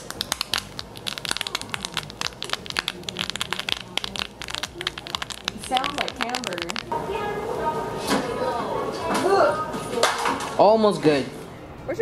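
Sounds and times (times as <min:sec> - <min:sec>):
foam bubbles crackling: 0:00.0 - 0:06.9.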